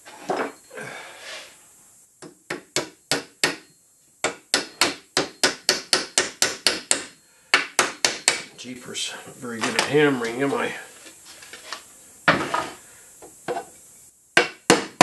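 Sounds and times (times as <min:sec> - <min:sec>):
small hammer tapping a nail: 0:02.2 - 0:08.5.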